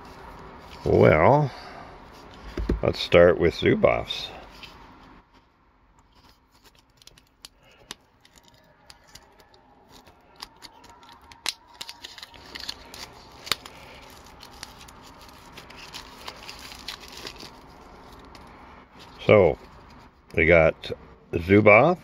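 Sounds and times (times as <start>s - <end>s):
plastic wrap crinkling: 6.2s - 18.5s
plastic wrap snapping: 6.7s - 17.6s.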